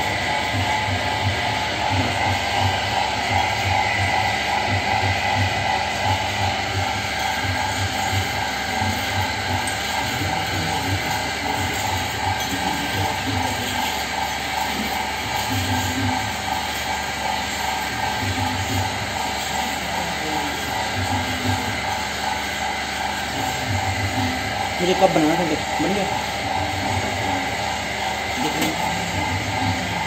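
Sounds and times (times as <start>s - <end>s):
potter's wheel humming: 0.0s - 30.0s.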